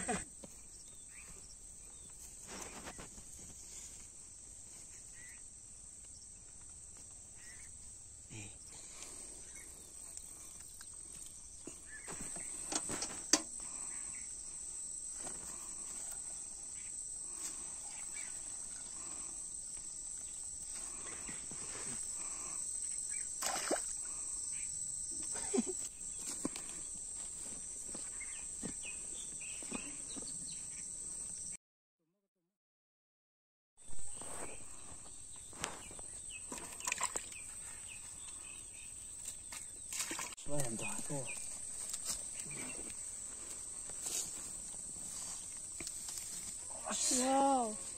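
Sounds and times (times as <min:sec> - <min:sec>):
crickets and insects chirping: 0:00.0 - 0:31.6, 0:33.8 - 0:47.9
hands splashing in wet mud: 0:23.4 - 0:23.9.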